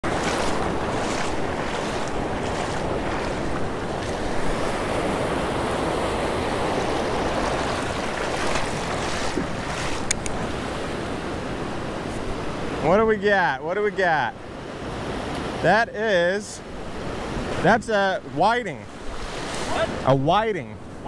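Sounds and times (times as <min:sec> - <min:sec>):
wind buffeting microphone: 0:00.0 - 0:12.9
ocean surf breaking: 0:00.0 - 0:21.0.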